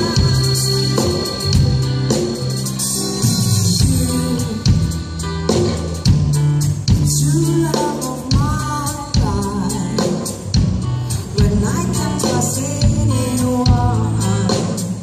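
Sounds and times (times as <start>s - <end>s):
drum kit: 0.0s - 15.0s
keyboard: 0.0s - 15.0s
woman singing into a microphone: 3.7s - 5.1s, 7.0s - 10.5s, 11.2s - 15.0s.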